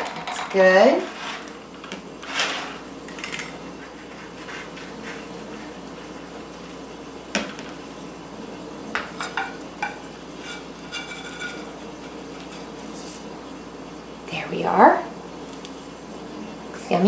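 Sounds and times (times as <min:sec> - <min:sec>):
metal server clinking on pan: 0:09.2 - 0:11.7.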